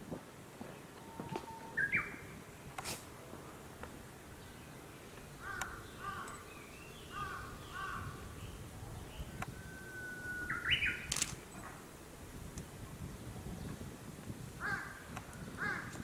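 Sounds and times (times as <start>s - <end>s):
sharp clicks: 5.2s - 6.4s, 11.0s - 11.5s
crows cawing: 5.4s - 6.4s, 7.1s - 8.2s, 14.6s - 16.0s.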